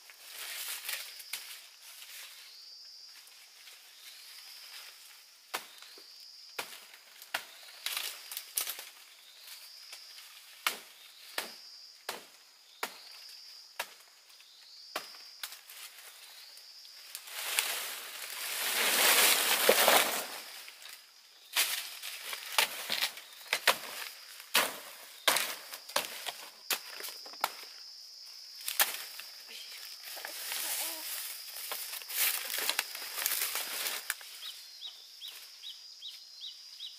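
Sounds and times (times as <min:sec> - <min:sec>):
leaves and stalks rustling: 0:00.0 - 0:12.3, 0:12.9 - 0:36.3
blade chopping plant stalks: 0:06.6 - 0:08.9, 0:10.6 - 0:13.1, 0:21.6 - 0:27.7, 0:28.6 - 0:29.2.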